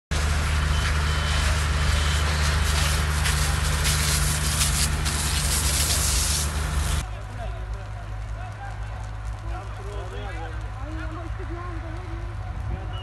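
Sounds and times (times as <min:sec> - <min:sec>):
fire engine motor running: 0:00.1 - 0:13.0
rushing hiss: 0:02.4 - 0:07.0.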